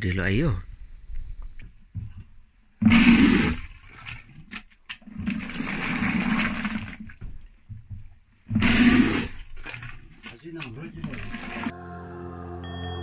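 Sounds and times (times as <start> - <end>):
rushing water bursts: 5.2 - 7.0, 8.6 - 11.7.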